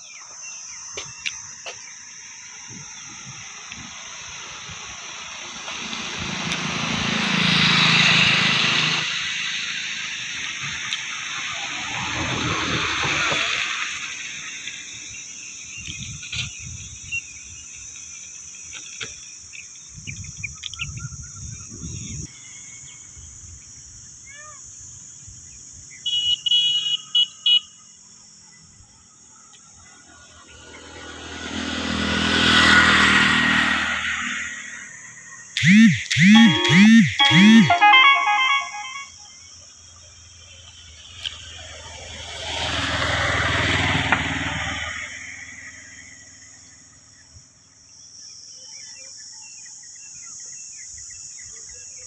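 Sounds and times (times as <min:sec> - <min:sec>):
road vehicles passing: 0:04.0 - 0:14.3, 0:29.9 - 0:36.3, 0:41.2 - 0:47.2
high pulsed chirps: 0:35.5 - 0:39.4.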